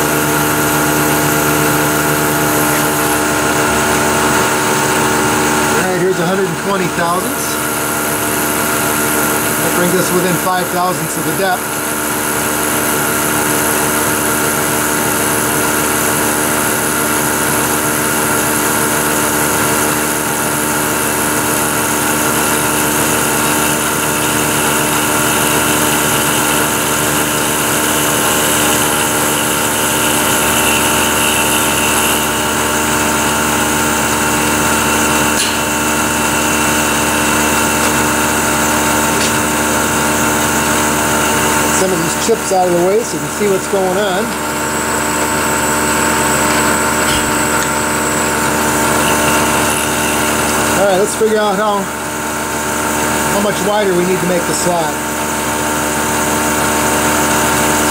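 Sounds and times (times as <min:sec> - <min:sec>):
milling machine whining: 0:00.0 - 0:57.9.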